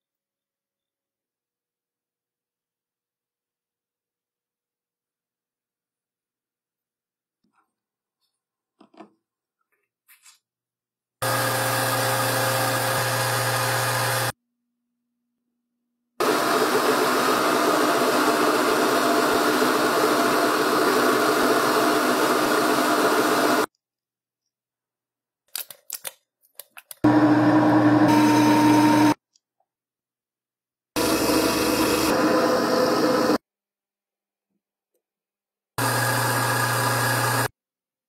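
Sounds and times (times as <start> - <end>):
metal lathe humming: 11.2 - 14.3, 31.0 - 33.4, 35.8 - 37.5.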